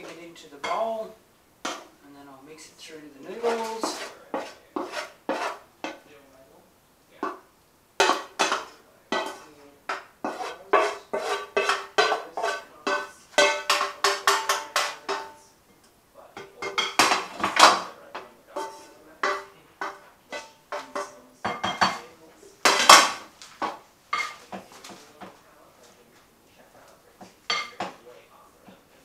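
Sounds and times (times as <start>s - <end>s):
wooden spoon knocking in pan: 0.0s - 2.0s, 7.2s - 15.4s, 16.4s - 25.4s.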